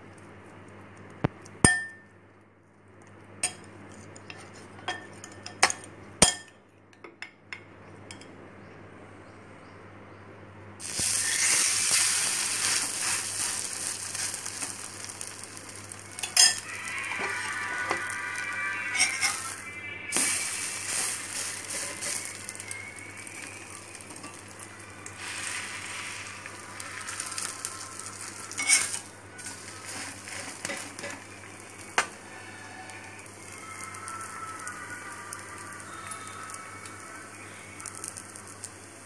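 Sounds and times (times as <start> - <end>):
bread sizzling on hot griddle: 10.8 - 39.0
spoon clinking against glass bowl: 16.2 - 16.6.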